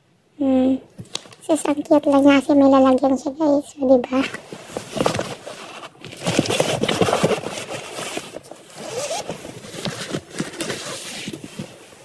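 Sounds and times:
rummaging through handbag: 4.2s - 12.0s.

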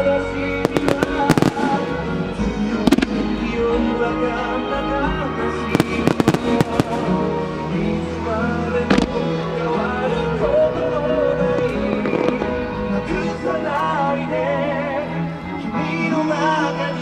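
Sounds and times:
music: 0.0s - 17.0s
firework shells bursting: 5.8s - 7.3s.

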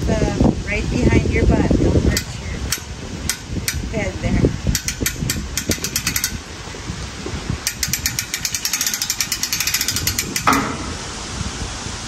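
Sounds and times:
rapid ratchet-like metallic clicking: 2.1s - 4.0s, 4.6s - 6.4s, 7.6s - 10.7s.

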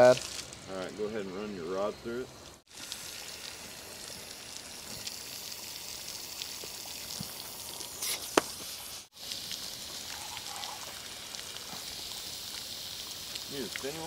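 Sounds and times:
water trickling: 2.4s - 8.0s, 9.1s - 14.0s.

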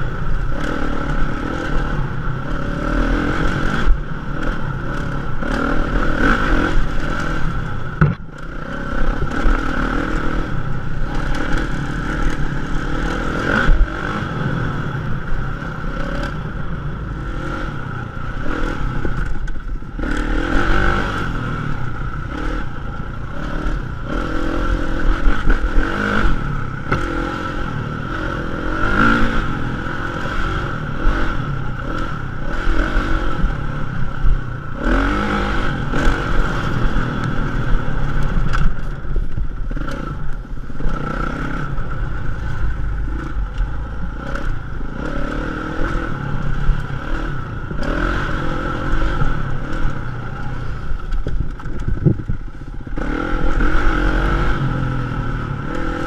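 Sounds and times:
dirt bike engine revving: 0.0s - 38.9s, 39.6s - 52.3s, 52.9s - 56.0s
bike rattling over rough ground: 35.9s - 54.4s.

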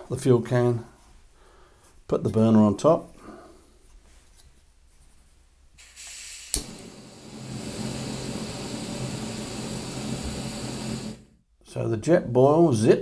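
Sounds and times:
burner igniting pop: 5.8s - 11.2s
gas stove burner hissing: 5.8s - 11.4s.

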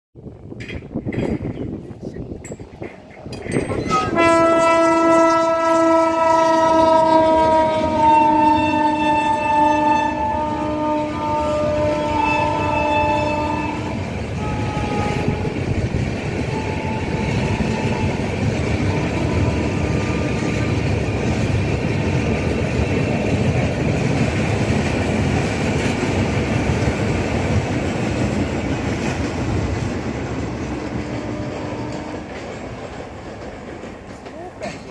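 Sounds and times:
train wheels rumbling on rails: 0.2s - 34.9s.

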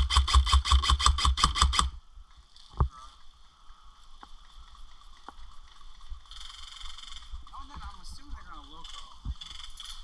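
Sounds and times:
airsoft rifle rapid shots: 0.0s - 2.0s.

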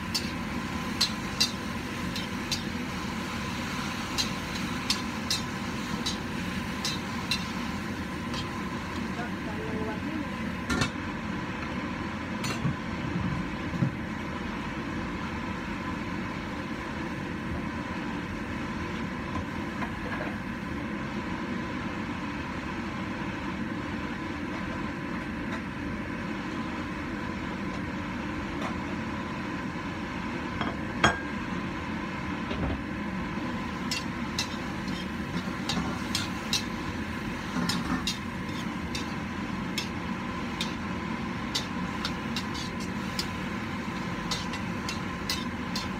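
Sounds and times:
gas burner rushing: 0.0s - 16.0s, 32.2s - 45.9s
metal spatula scraping wok: 4.0s - 9.0s, 33.8s - 40.9s, 41.5s - 45.9s.

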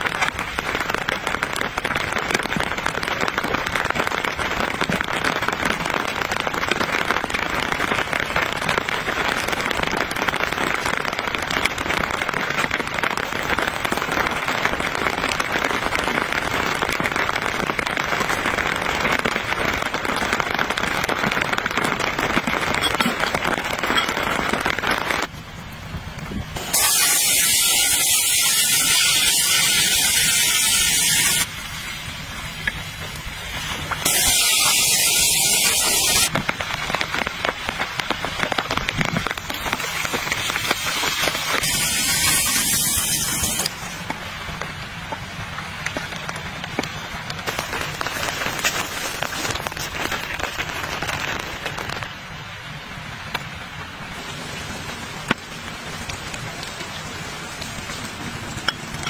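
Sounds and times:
rain pattering on a tarp: 0.0s - 59.0s
gas camp stove hissing: 26.6s - 36.3s, 39.8s - 44.0s.

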